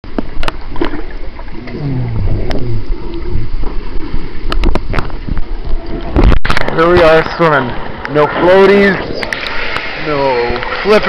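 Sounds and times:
underwater rumble of churned water: 0:00.0 - 0:11.0
underwater clicks: 0:00.1 - 0:07.3.

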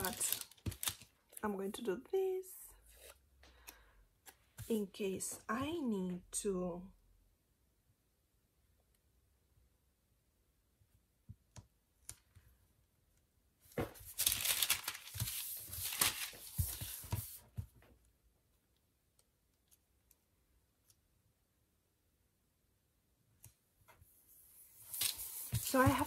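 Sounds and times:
paper rustling and crinkling: 0:00.0 - 0:01.2, 0:13.7 - 0:17.7, 0:24.8 - 0:26.0.

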